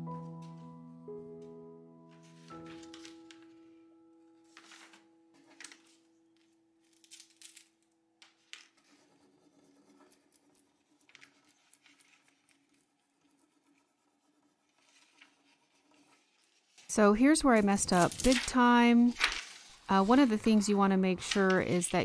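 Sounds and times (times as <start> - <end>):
background music: 0.0 - 6.5
hand tool scratching on wood: 8.8 - 16.9.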